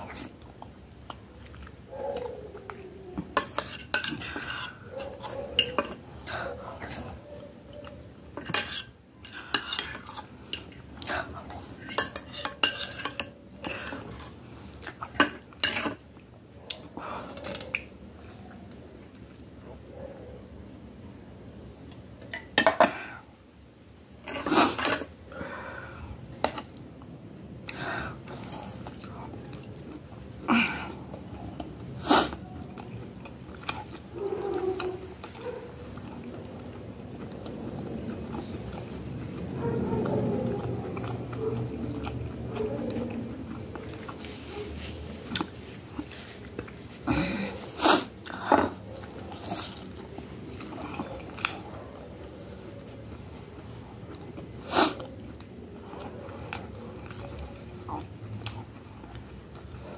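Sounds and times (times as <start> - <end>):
fork scraping on glass plate: 3.4 - 6.0.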